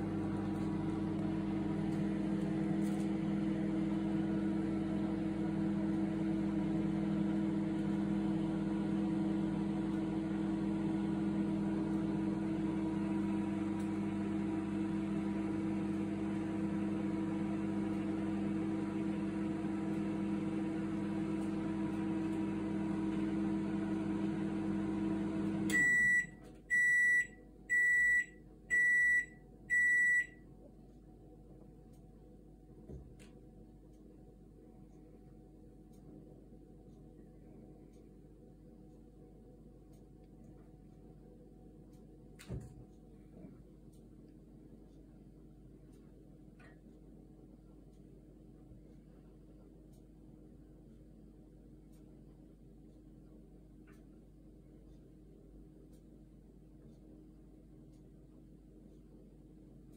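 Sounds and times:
microwave beeps: 0.0 - 30.5
microwave oven humming: 0.0 - 59.9.

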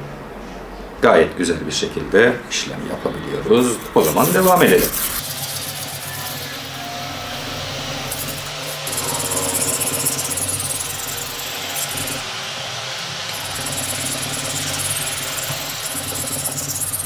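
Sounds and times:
knife scraping on whetstone: 3.5 - 7.1, 8.0 - 12.2, 13.3 - 17.0.

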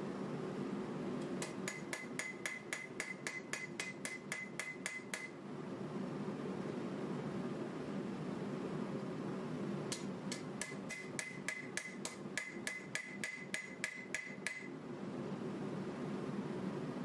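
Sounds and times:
hammer striking steel on anvil: 1.4 - 5.4, 9.9 - 14.7.

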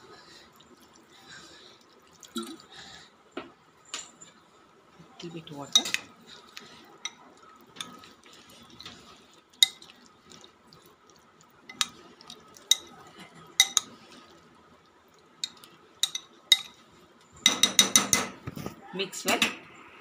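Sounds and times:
spoon stirring chicken: 5.2 - 14.5, 15.1 - 18.5
spoon clinking glass bowl: 5.7 - 6.1, 9.6 - 9.9, 12.7 - 12.9, 13.6 - 13.9, 15.4 - 16.8, 17.4 - 18.3.

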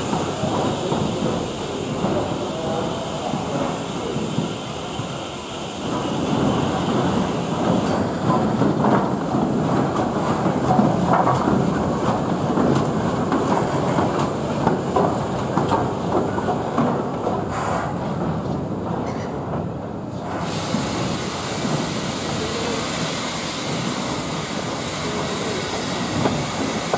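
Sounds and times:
train wheels clattering over rail joints: 0.0 - 26.9.

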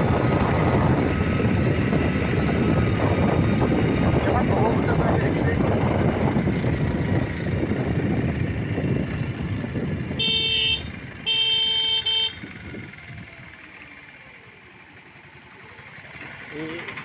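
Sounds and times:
wind on microphone: 0.0 - 10.2
road noise: 0.0 - 17.0
vehicle horn honking: 10.2 - 12.6.

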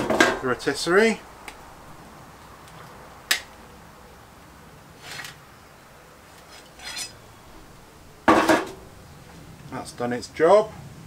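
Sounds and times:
metal spit scraping: 6.4 - 7.6.

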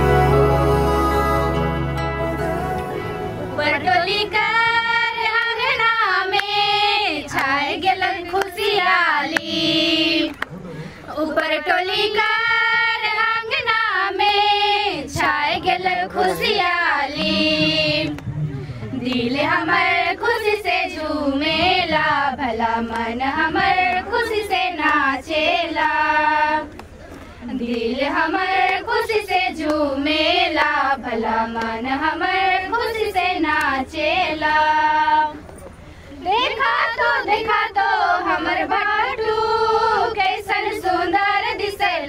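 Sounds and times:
high voice singing: 0.0 - 5.0
high singing voice: 0.0 - 10.4, 11.1 - 18.2.

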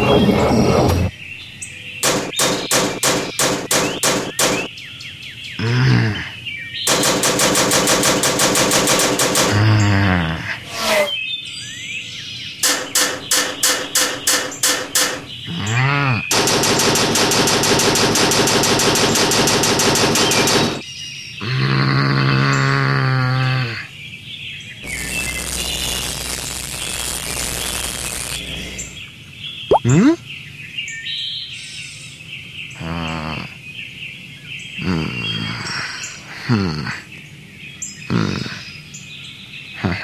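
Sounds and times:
rapid buzzing trills: 2.0 - 4.7, 6.9 - 11.2, 16.3 - 20.8, 24.8 - 29.1
sharp rattling pulses: 2.0 - 4.7, 6.9 - 10.1, 12.6 - 15.4, 16.3 - 20.8
short sliding tones: 10.7 - 11.2.

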